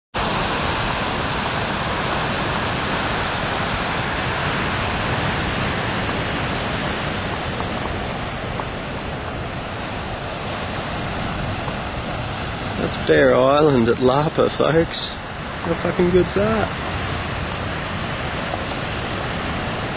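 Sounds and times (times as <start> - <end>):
ocean waves breaking: 0.1 - 19.9.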